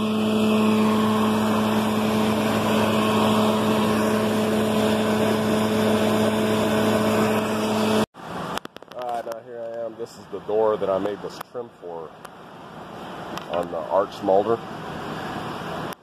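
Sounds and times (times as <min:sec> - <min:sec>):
wood cutting noise: 0:00.0 - 0:08.1
woodworking machine humming: 0:00.0 - 0:08.1.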